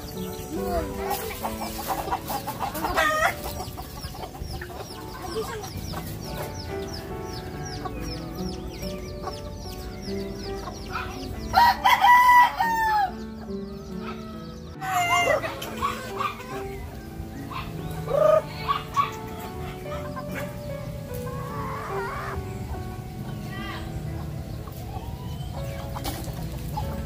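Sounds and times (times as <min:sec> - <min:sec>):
chickens clucking: 0:00.0 - 0:27.0
rooster crowing loudly: 0:11.6 - 0:13.2, 0:14.8 - 0:15.5.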